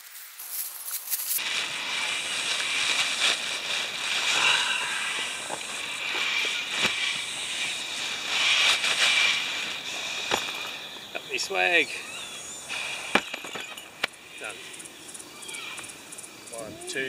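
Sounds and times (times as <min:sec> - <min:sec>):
plastic bag rustling: 0:00.0 - 0:11.4.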